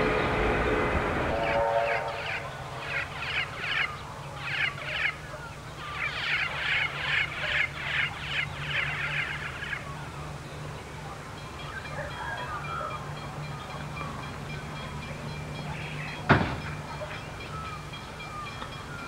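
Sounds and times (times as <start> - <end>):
bird squawking: 1.4 - 10.0.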